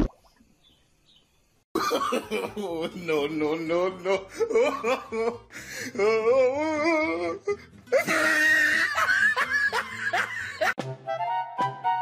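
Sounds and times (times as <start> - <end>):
people laughing loudly: 1.8 - 3.2, 4.0 - 5.4, 7.9 - 10.8
music: 2.7 - 12.0.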